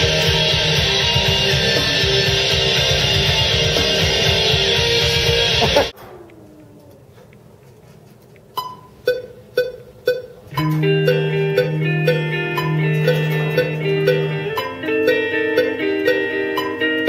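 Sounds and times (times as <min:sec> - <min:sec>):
electric guitar picked notes: 0:00.0 - 0:07.1, 0:10.5 - 0:17.0.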